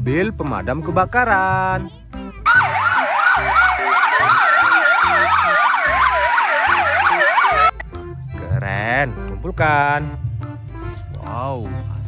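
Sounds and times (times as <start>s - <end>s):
electronic siren wailing: 2.5s - 7.8s.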